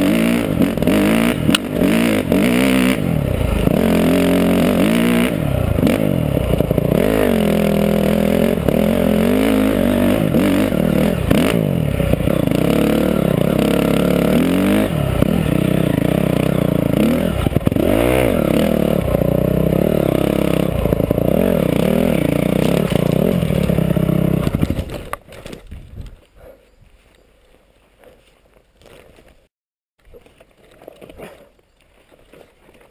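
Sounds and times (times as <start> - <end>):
dirt bike engine revving: 0.0 - 25.1.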